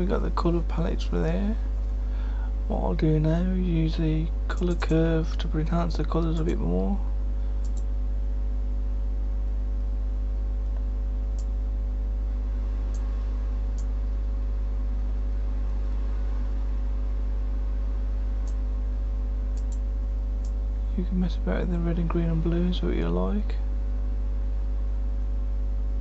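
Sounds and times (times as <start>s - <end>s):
low electrical hum: 0.0s - 26.0s
faint mouse clicks: 7.6s - 7.9s, 10.6s - 11.6s, 13.7s - 13.9s, 19.5s - 19.8s.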